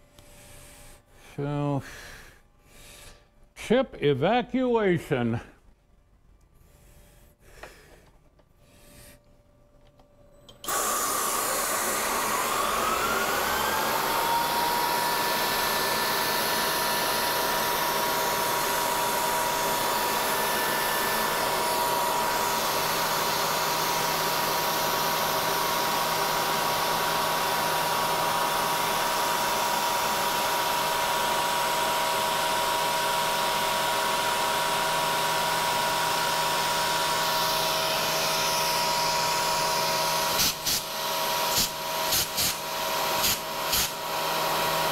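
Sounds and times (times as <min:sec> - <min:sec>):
milling machine spindle whine: 0:10.5 - 0:44.9.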